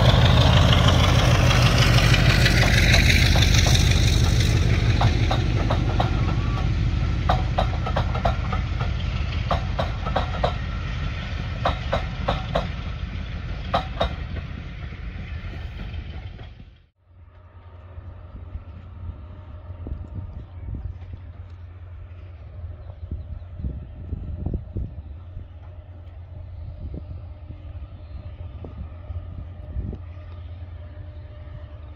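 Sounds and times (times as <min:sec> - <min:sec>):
train wheels clicking over rail joints: 0:00.0 - 0:22.4
diesel locomotive engine: 0:00.0 - 0:31.9.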